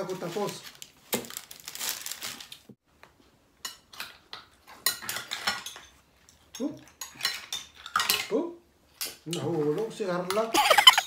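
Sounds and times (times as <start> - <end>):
cutlery clinking on dishes: 3.6 - 8.4.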